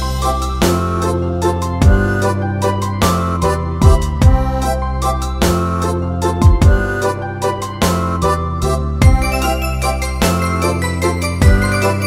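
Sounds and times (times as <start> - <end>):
keyboard melody over bass: 0.0 - 12.0
low drum thumps: 3.8 - 4.5, 6.4 - 6.9.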